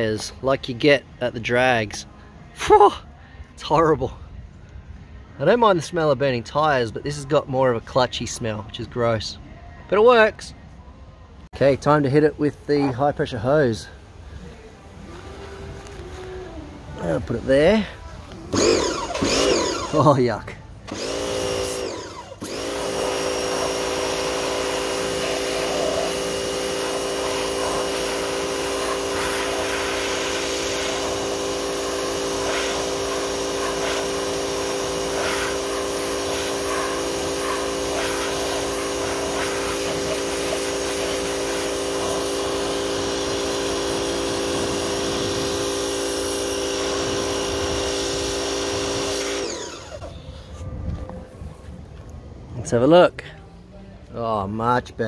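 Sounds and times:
pressure washer humming: 0:12.0 - 0:50.2
high-pressure water jet hissing: 0:18.5 - 0:50.1.

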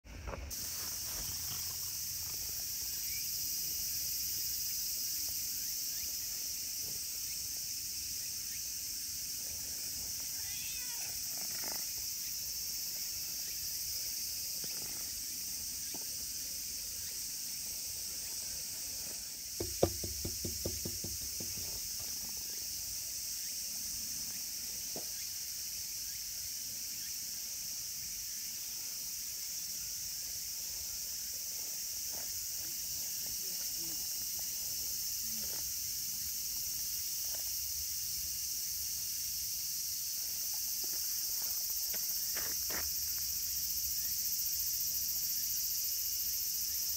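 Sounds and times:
insects droning: 0:00.1 - 0:46.9
cat meowing: 0:10.4 - 0:11.2.

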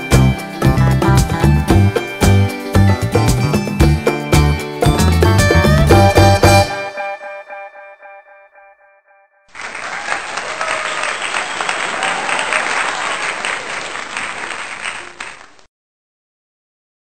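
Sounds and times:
background music with echo: 0:00.0 - 0:08.9
applause: 0:09.5 - 0:15.7.

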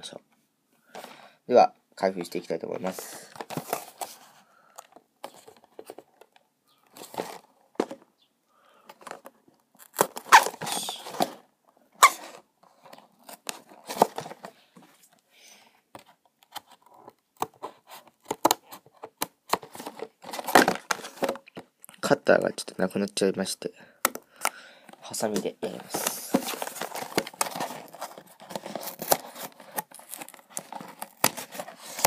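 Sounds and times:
cardboard box being handled: 0:25.3 - 0:32.0.

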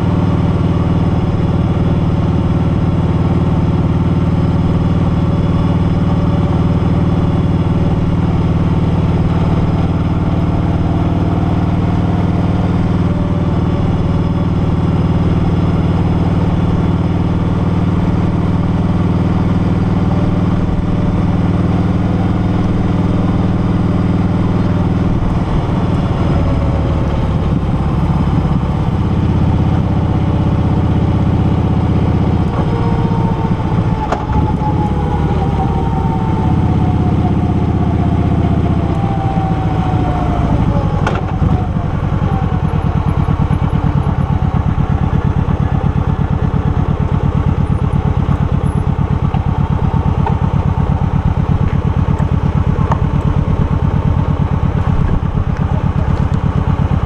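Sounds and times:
motorcycle engine running: 0:00.0 - 0:57.0
falling whine: 0:18.7 - 0:43.9.

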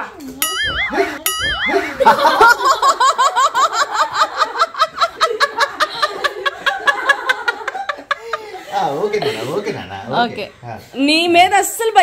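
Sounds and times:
high wavering squeal: 0:00.4 - 0:02.1
people laughing hard: 0:00.6 - 0:09.6.

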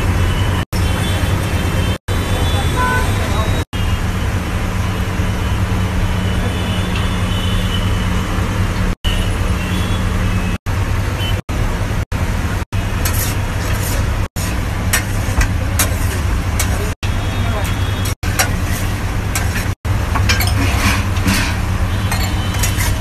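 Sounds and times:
street noise with low hum: 0:00.0 - 0:23.0
metal spatula scraping griddle: 0:12.9 - 0:17.0, 0:17.9 - 0:23.0.

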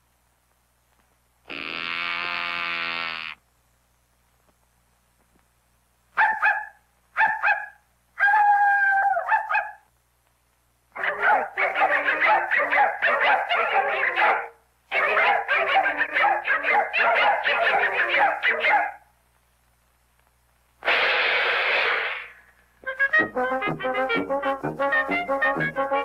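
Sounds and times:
cartoon puppy yapping: 0:06.2 - 0:09.8, 0:11.0 - 0:19.0
rushing noise: 0:20.8 - 0:22.6
brass band music: 0:22.8 - 0:26.0.

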